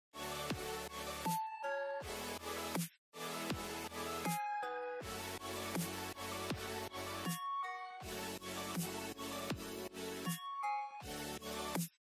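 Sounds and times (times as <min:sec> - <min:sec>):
electronic music with beat: 0:00.2 - 0:12.0
chiming notes: 0:04.2 - 0:05.0, 0:07.2 - 0:08.0, 0:10.2 - 0:11.1.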